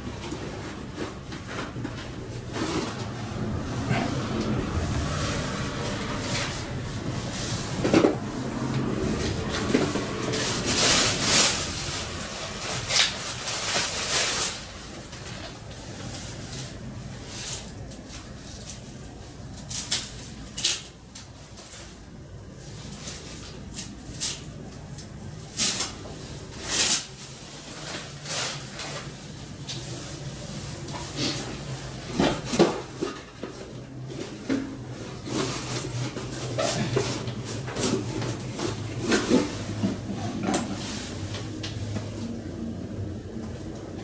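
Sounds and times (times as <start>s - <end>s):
metal parts scraping and rustling: 9.2s - 22.0s.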